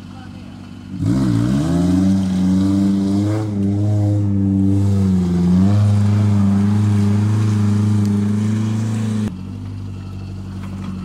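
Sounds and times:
engine at high revs: 0.9 - 9.3.

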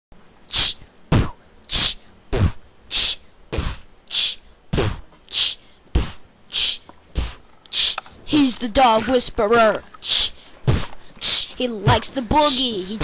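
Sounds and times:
person hissing: 0.5 - 8.0, 10.0 - 11.6.

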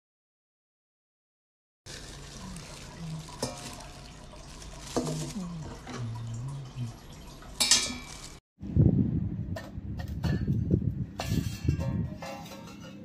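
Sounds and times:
plastic wrapping rustling: 1.9 - 8.4
metal fry basket handled: 7.5 - 8.4, 11.2 - 13.0.

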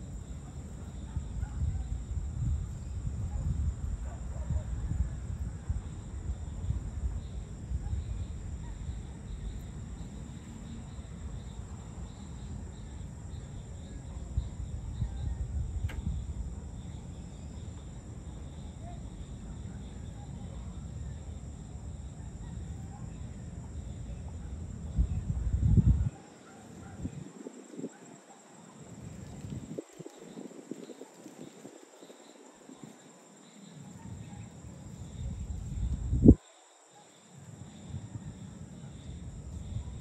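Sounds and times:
insects chirring: 0.0 - 40.0
faint click: 15.8 - 16.1.

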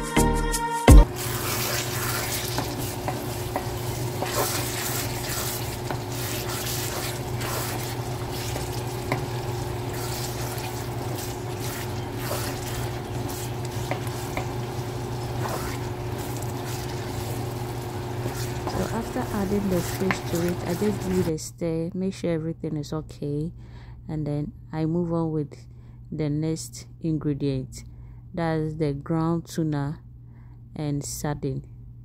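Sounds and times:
stew sizzling in a pan: 1.0 - 21.3
steady low hum: 1.0 - 32.0
wooden spatula scraping a pan: 1.1 - 21.3.

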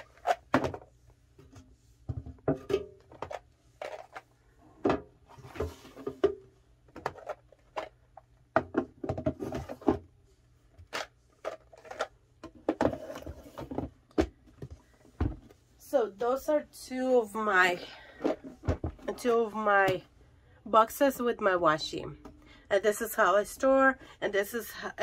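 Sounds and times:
plastic drawers clicking and knocking: 2.1 - 10.1.

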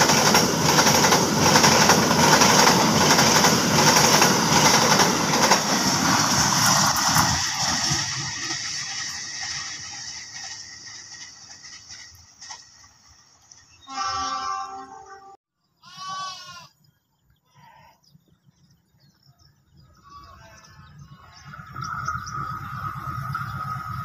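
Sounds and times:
diesel train rumble: 0.0 - 15.3, 20.9 - 24.0
goat bleating: 15.8 - 16.7.

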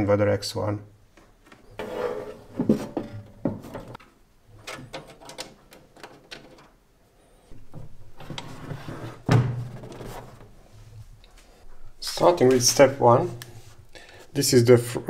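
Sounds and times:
metal rubbing on wood: 1.8 - 3.1.

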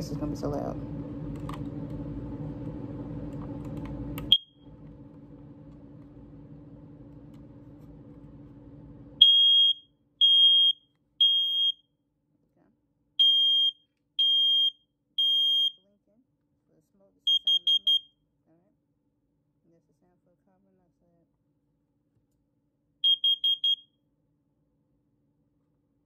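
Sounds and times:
high-pitched smoke alarm beeps: 4.3 - 4.6, 9.2 - 11.8, 13.2 - 15.8, 17.3 - 18.2, 23.0 - 23.9
smoke alarm chirp: 4.3 - 4.6, 9.2 - 11.8, 13.2 - 15.8, 17.3 - 18.2, 23.0 - 23.9.

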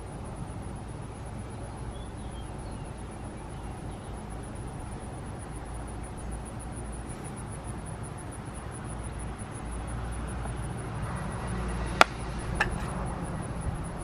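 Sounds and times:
low outdoor rumble: 0.0 - 14.0
knife striking wood: 12.0 - 13.0.

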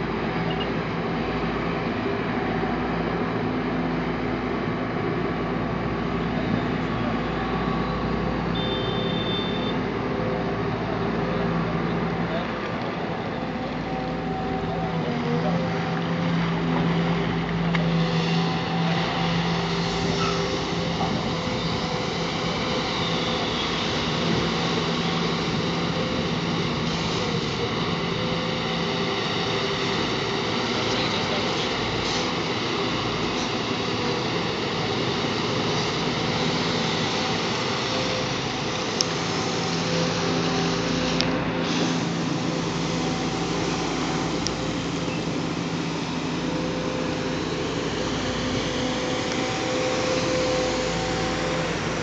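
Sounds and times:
diesel excavator engine droning: 0.0 - 52.0.

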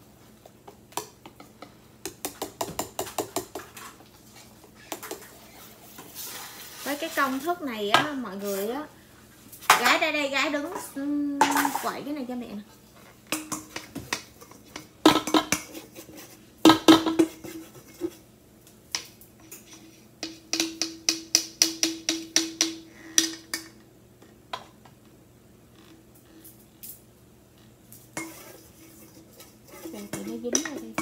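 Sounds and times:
whisk clinking against metal bowl: 28.2 - 31.0.

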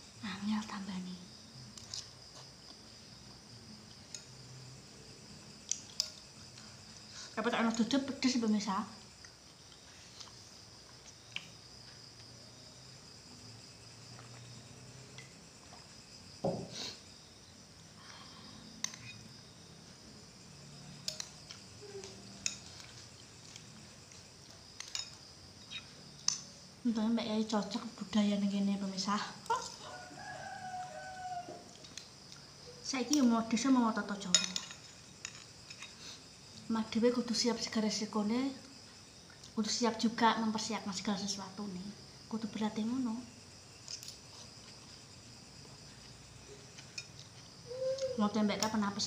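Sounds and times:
crickets chirring: 0.0 - 49.0
glass set down knock: 16.4 - 16.7.

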